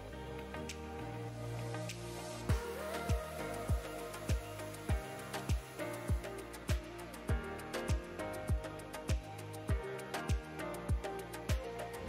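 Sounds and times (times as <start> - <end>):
light ticking percussion: 1.8 - 12.0
deep drum beat: 2.5 - 11.6.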